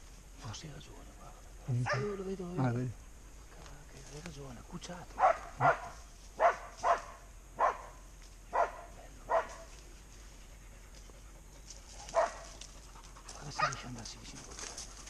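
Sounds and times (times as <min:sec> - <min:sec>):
dog barking: 0:01.7 - 0:02.2, 0:05.2 - 0:09.7, 0:12.0 - 0:12.6, 0:13.4 - 0:14.0.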